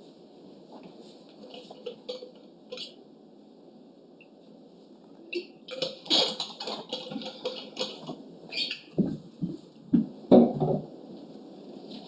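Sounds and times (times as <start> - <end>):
water bottle noises: 5.3 - 9.0
footsteps on floor: 8.9 - 10.2.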